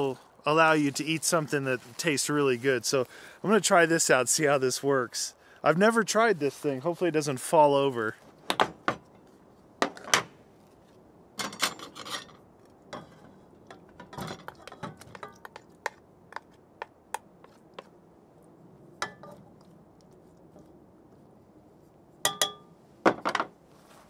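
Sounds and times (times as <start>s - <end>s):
metal cookware clinking: 22.3s - 22.7s.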